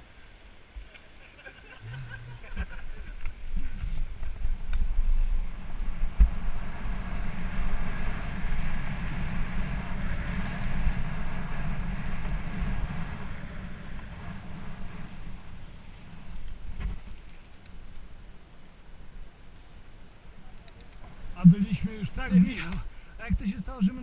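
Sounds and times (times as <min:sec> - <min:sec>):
bike tyre rumble and rattle: 0:02.5 - 0:18.4.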